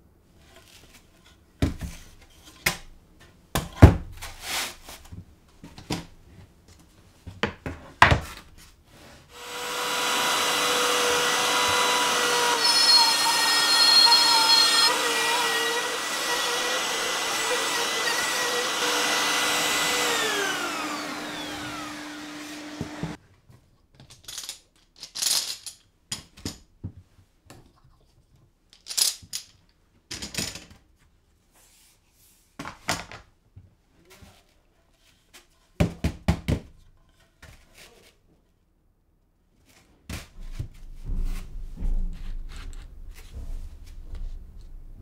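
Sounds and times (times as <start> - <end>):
router whining: 9.3 - 23.2
vacuum running: 9.4 - 23.2.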